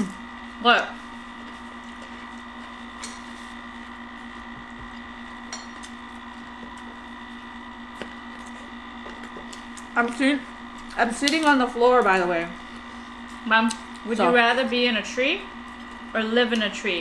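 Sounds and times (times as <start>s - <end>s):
fountain motor electric hum: 0.0s - 17.0s.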